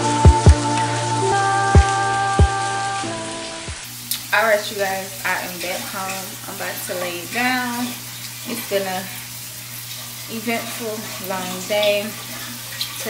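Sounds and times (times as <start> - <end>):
music with thumping beat: 0.0 - 0.8, 1.7 - 2.7
shower running: 0.0 - 13.0
person speaking: 10.3 - 12.2.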